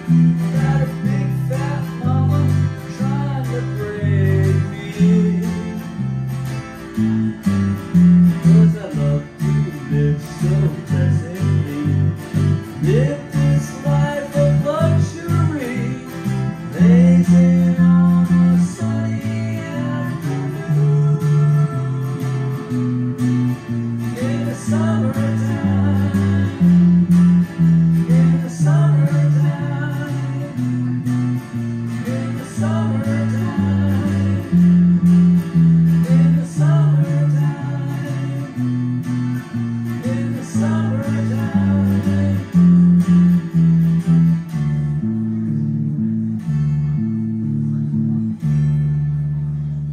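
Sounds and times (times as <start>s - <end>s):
acoustic guitar: 0.0s - 49.9s
electric guitar lead: 0.0s - 49.9s.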